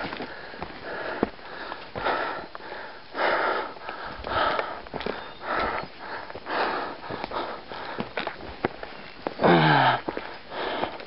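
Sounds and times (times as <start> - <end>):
person breathing hard: 0.0 - 8.4, 9.4 - 11.0
footsteps through brush: 3.7 - 11.0.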